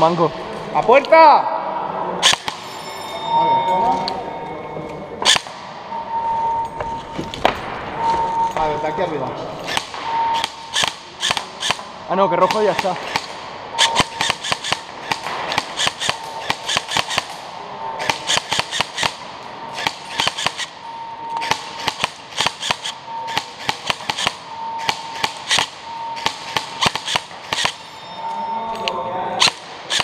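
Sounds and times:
airsoft rifle firing rapid pops: 0:09.7 - 0:11.9, 0:12.6 - 0:17.4, 0:18.0 - 0:19.2, 0:19.8 - 0:20.7, 0:21.4 - 0:27.8, 0:29.4 - 0:30.0.

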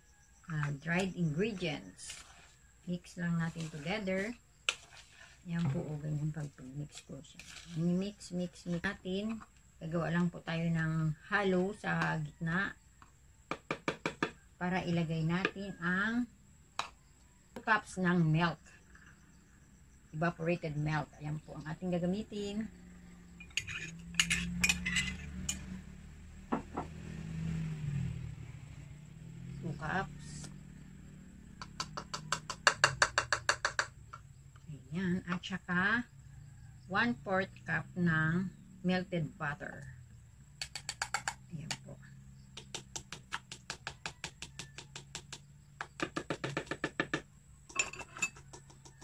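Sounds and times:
spoon tapping plastic cup: 0:31.6 - 0:33.9, 0:40.6 - 0:41.4.

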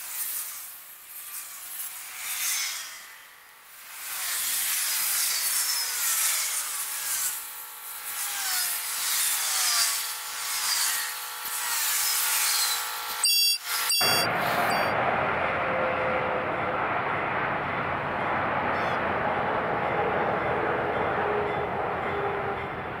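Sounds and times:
train wheels squealing on rails: 0:13.2 - 0:15.0, 0:19.9 - 0:22.9
train cars rumbling past: 0:14.0 - 0:23.0.

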